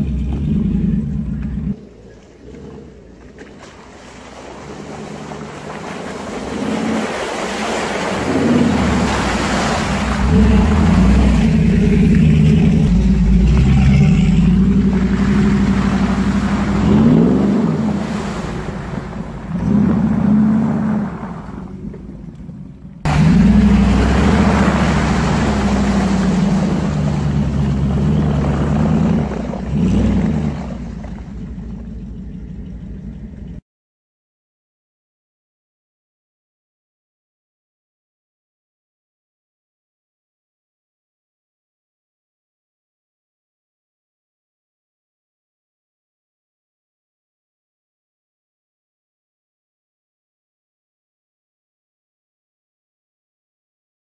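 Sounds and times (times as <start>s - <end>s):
engine revving up and down: 0.0s - 3.2s, 4.0s - 22.2s, 23.0s - 32.1s.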